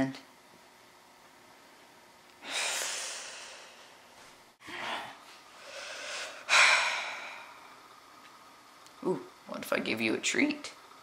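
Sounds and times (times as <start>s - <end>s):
person sighing and breathing heavily: 2.4s - 4.0s, 4.6s - 7.7s.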